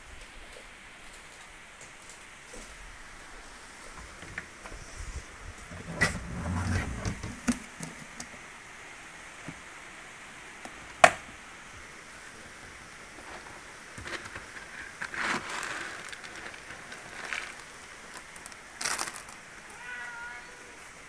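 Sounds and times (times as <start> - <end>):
soft rustling and shuffling: 12.2 - 19.5.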